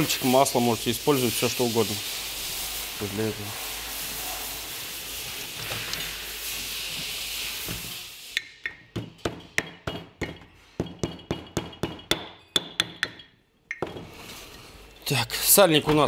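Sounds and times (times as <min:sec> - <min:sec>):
steady hiss: 0:00.0 - 0:08.9
hammer tapping on metal: 0:08.4 - 0:14.0.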